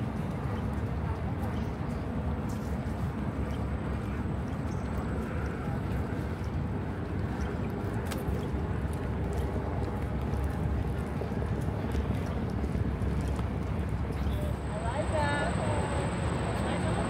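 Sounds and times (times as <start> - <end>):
faint footsteps on pavement: 0.0 - 17.0
low outdoor rumble: 5.0 - 17.0.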